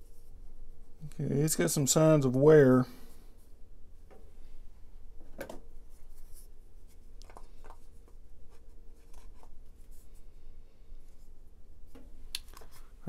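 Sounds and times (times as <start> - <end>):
faint steady hum: 0.0 - 13.0
soft rubbing: 5.8 - 13.0.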